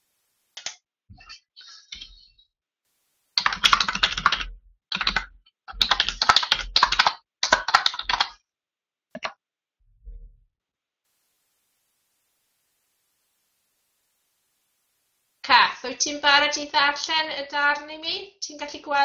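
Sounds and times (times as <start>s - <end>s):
typing on computer keyboard: 3.4s - 8.4s.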